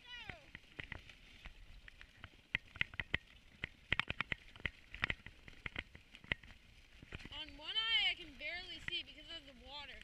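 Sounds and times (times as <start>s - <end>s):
sled clicks and knocks: 0.0s - 9.5s.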